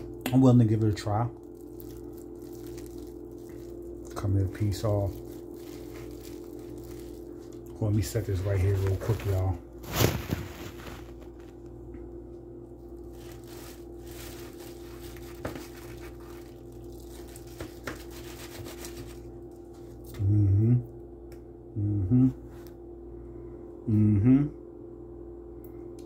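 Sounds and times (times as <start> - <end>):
steady low hum: 0.0 - 26.0
foil wrapper crinkling: 0.7 - 11.8, 12.8 - 20.0
man's short vocal sound: 20.2 - 20.9, 21.8 - 22.4, 23.9 - 24.6.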